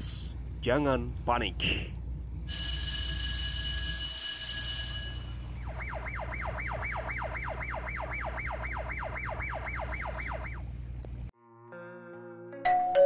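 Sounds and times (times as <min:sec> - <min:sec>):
steady low rumble: 0:00.0 - 0:03.4, 0:04.6 - 0:11.3
siren warbling rapidly: 0:05.4 - 0:10.8.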